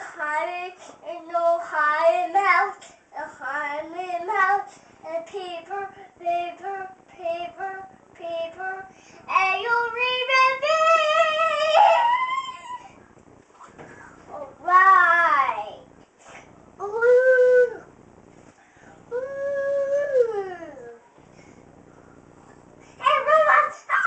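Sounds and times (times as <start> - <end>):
boy singing mock-opera: 0.0 - 12.8, 16.8 - 17.9, 19.1 - 21.0, 23.0 - 24.0.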